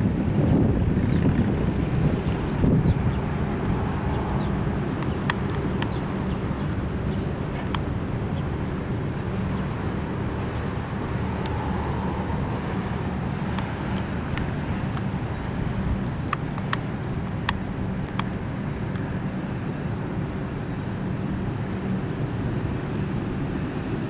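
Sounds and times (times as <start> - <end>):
train wheels rumbling on rail: 0.0 - 24.0
sharp clicks: 3.6 - 6.0, 16.2 - 19.1.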